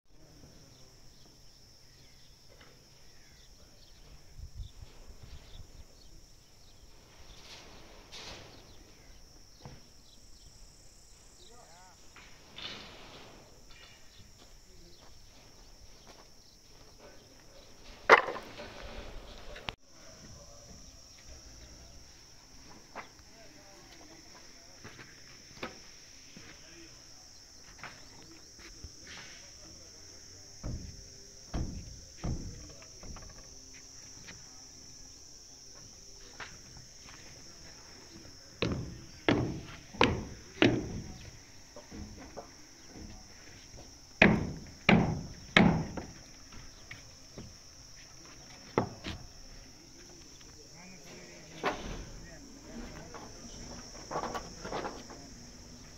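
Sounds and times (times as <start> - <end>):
sudden loud knock: 30.6 - 33.3, 38.6 - 41.2, 44.2 - 46.1.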